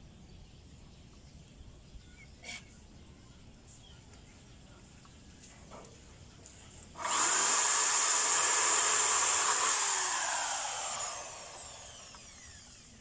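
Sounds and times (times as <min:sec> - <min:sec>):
electric drill boring into wood: 0:07.0 - 0:13.0.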